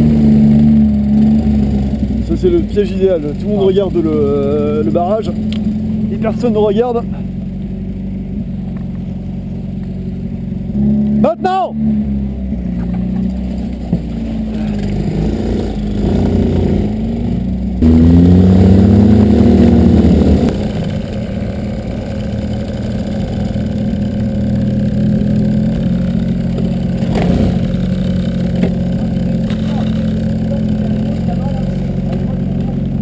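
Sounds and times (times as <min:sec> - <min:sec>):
buggy engine revving: 0:00.0 - 0:33.0.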